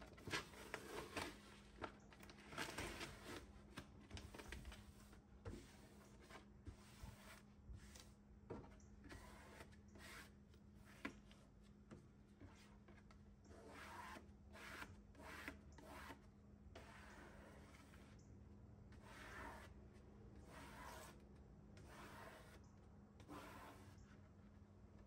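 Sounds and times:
paper liner rustling and rubbing: 23.3s - 24.0s.

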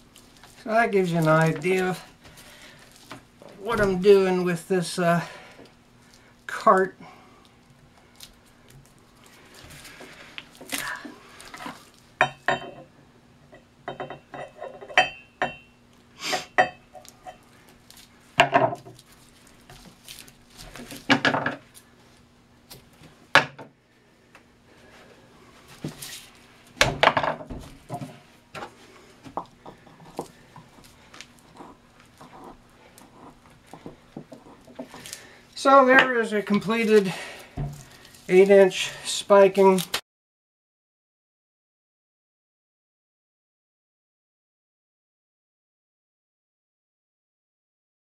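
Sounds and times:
low steady hum: 0.0s - 39.9s
string clinking and scraping on casing: 27.0s - 39.2s.

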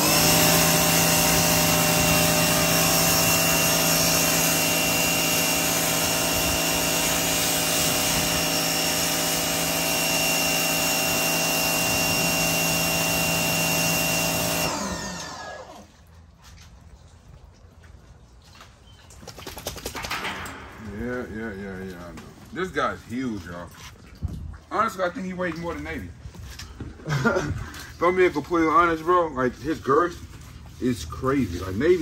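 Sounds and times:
motor winding down: 0.0s - 16.0s
pressure washer running: 0.0s - 16.2s.

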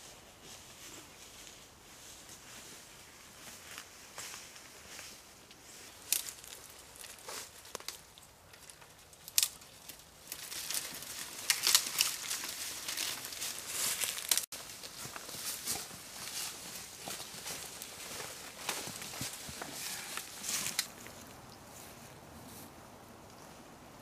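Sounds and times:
twigs crackling: 5.5s - 22.1s
brushing through undergrowth: 9.3s - 22.7s
boots crunching dry leaves: 10.2s - 21.3s.

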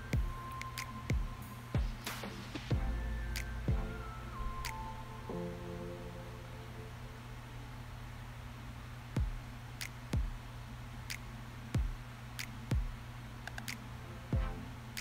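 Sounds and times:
low steady hum: 0.0s - 15.0s
deep kick drums: 0.1s - 0.4s, 1.1s - 2.1s, 2.7s - 3.0s, 3.7s - 4.0s, 9.2s - 9.5s, 10.2s - 10.4s, 11.8s - 12.0s, 12.7s - 13.0s, 14.4s - 14.6s.

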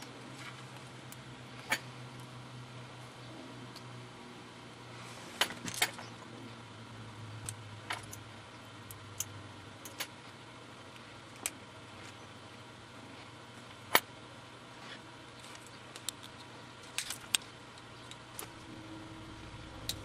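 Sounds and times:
small plastic and metal clicks: 15.4s - 18.5s.

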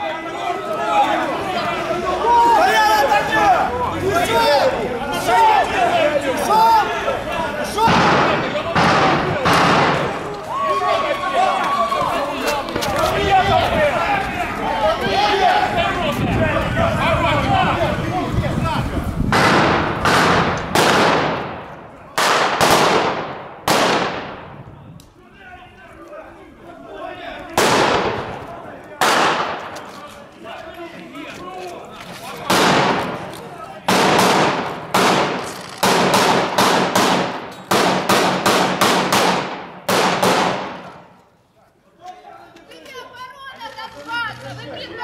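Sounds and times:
gunshots with echo: 7.8s - 10.2s, 19.3s - 24.6s, 27.6s - 28.4s, 29.0s - 29.7s, 32.5s - 33.3s, 33.9s - 41.0s.

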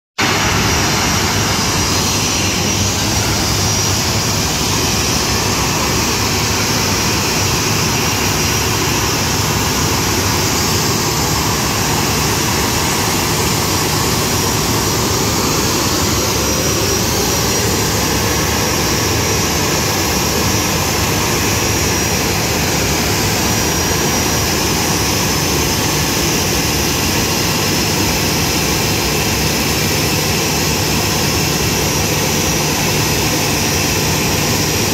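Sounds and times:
faint high whine: 0.2s - 34.9s
jet engines rumbling: 0.2s - 34.9s.

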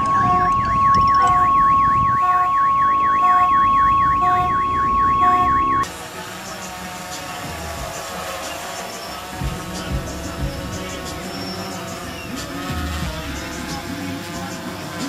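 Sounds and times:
short beeps: 0.0s - 5.8s
electronic siren warbling: 0.0s - 5.9s
steady high tone: 0.0s - 15.0s.

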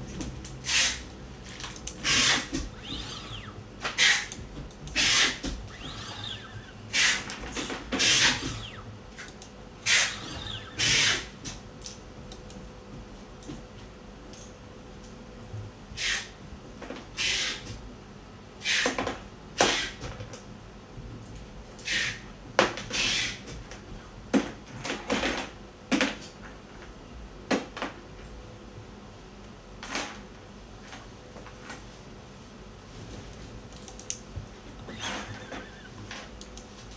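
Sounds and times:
test probes clicking and tapping: 1.5s - 12.6s.

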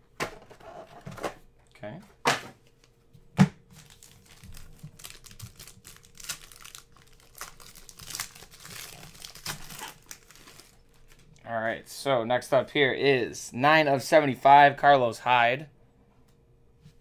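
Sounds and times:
foil wrapper crinkling and tearing: 3.7s - 11.4s.

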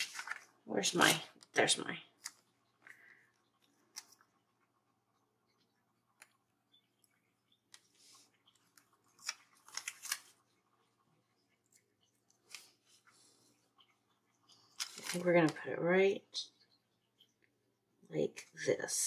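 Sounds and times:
paper clicks and rustles: 0.0s - 1.5s, 8.4s - 10.6s, 14.5s - 15.6s
crisp paper crinkling: 0.0s - 1.6s, 8.0s - 10.8s, 14.5s - 15.6s.

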